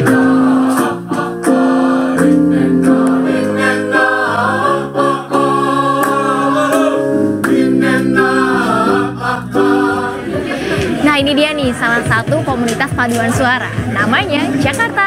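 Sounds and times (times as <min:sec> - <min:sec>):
mixed choir singing in harmony: 0:00.0 - 0:11.1.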